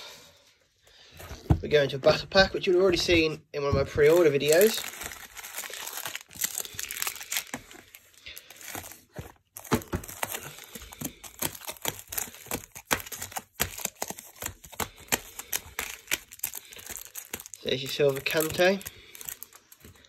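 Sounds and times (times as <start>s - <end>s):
foil wrappers crinkling: 4.0s - 20.0s.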